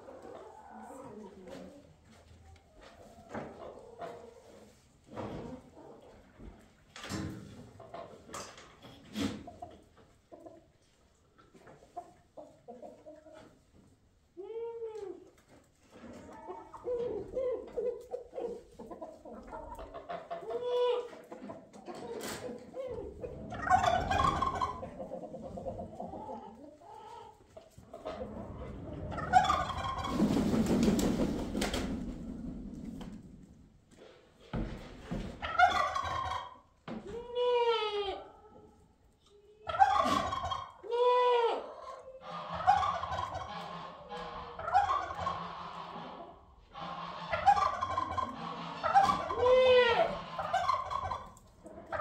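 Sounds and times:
chickens clucking: 0.0 - 52.0
turkey gobbling: 16.2 - 30.7, 35.4 - 36.7, 39.6 - 52.0.

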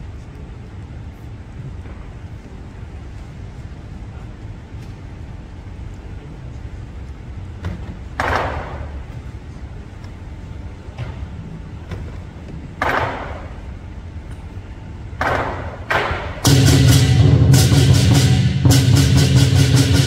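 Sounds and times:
low hall rumble: 0.0 - 20.0
cymbal clashes: 16.4 - 20.0.

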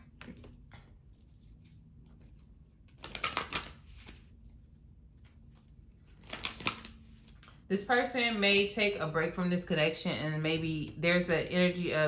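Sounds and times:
card clicking and rustling on table: 2.9 - 4.2, 6.1 - 7.4
cards tapping: 2.9 - 4.2, 6.2 - 7.0.

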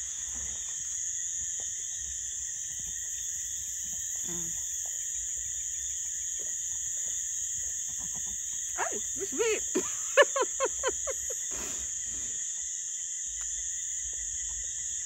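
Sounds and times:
crickets chirping: 0.0 - 15.0
frogs calling: 7.2 - 15.0.

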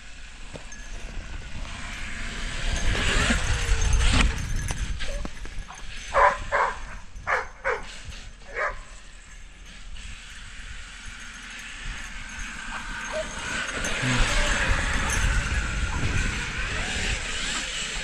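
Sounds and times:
dog barking: 6.2 - 7.9, 8.5 - 8.9
rush of noise with deep rumble: 11.6 - 18.0.

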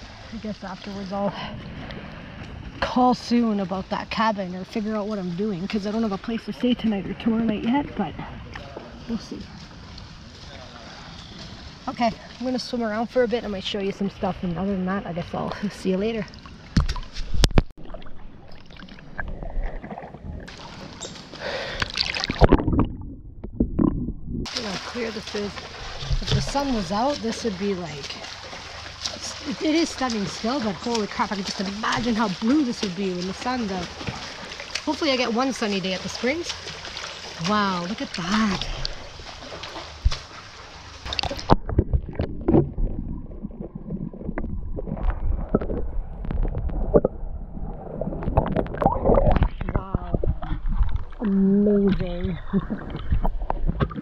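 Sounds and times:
water sloshing and splashing: 0.0 - 54.0
muffled underwater sound: 41.1 - 54.0.

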